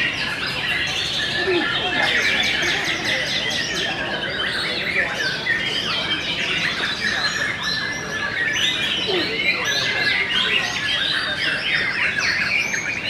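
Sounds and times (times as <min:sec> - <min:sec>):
chorus of songbirds: 0:00.0 - 0:13.0.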